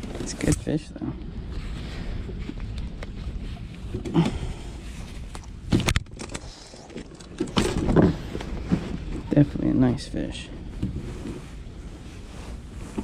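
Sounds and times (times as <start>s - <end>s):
wind rumble on microphone: 0.0s - 6.5s
handling knocks and rustles: 1.5s - 9.9s.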